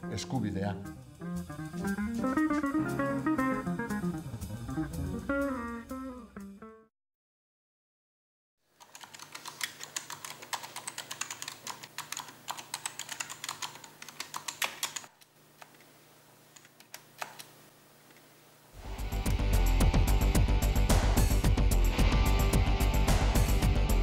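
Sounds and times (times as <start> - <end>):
music with a beat: 1.2 - 6.6, 18.9 - 24.0
fast keyboard typing: 8.8 - 15.2.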